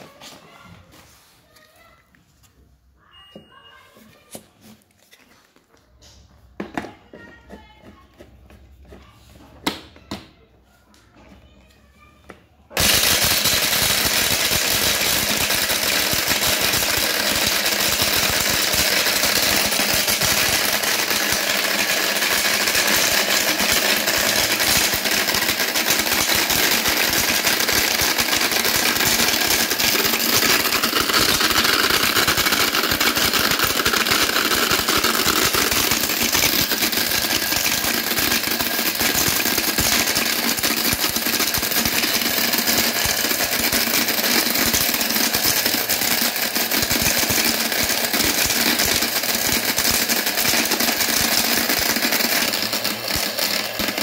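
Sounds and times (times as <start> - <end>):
mixer grinder motor spinning: 12.8 - 54.0.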